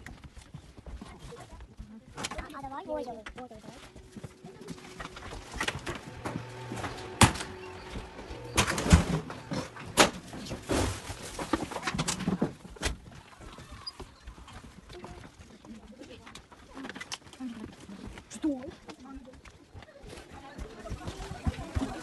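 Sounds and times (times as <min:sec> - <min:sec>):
train doors opening and shutting: 0:05.6 - 0:11.0.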